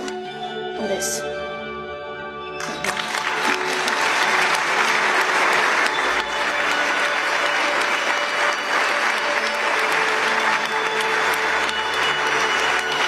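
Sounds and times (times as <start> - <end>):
soft background music: 0.0 - 13.0
large audience applauding: 2.6 - 13.0.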